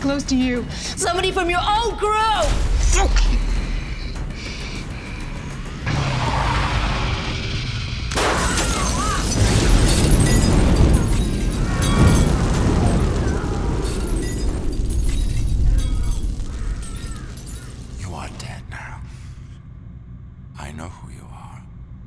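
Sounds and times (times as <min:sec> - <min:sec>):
music: 0:00.0 - 0:22.0
fire burning rumble: 0:02.4 - 0:19.7
explosion: 0:05.8 - 0:18.0.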